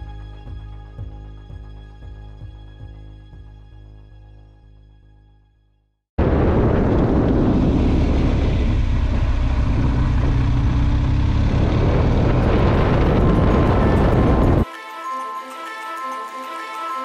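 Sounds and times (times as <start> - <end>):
wind rush on microphone: 6.2 - 14.6
motorcycle engine running: 6.5 - 14.6.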